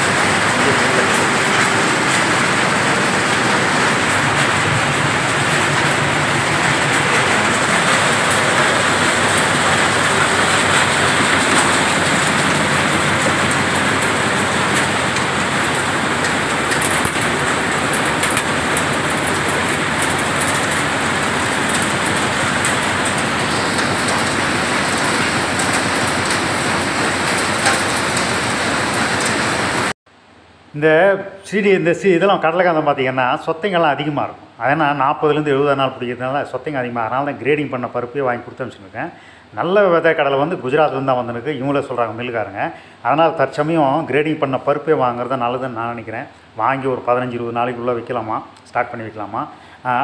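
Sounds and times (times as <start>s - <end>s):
nuts rattling through machine: 0.0s - 29.3s
grading machine running: 0.0s - 30.0s.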